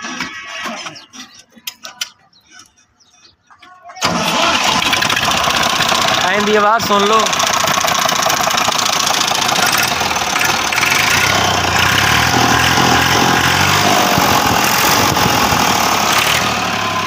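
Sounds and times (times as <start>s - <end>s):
tractor diesel engine running: 4.0s - 17.0s.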